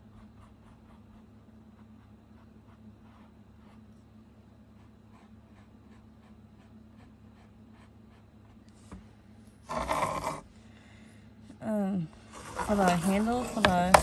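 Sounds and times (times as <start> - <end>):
paintbrush rubbing on canvas: 0.0 - 8.9, 9.6 - 10.5, 12.2 - 14.0
canvas scraping across table: 9.6 - 10.5, 12.2 - 14.0.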